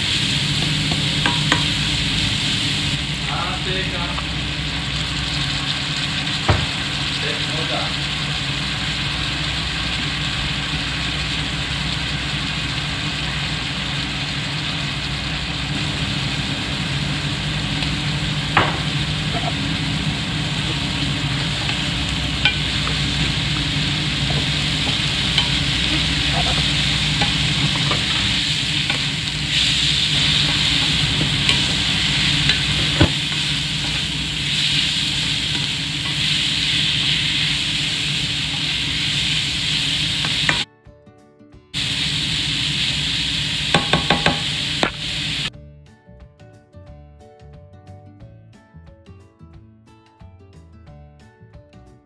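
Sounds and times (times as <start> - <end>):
food sizzling in a pan: 0.0 - 40.7, 41.8 - 45.5
low hum: 8.2 - 40.6.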